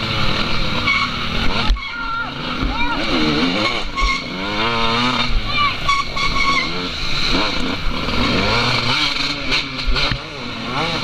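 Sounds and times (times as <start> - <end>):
racing engine revving: 0.0 - 11.0.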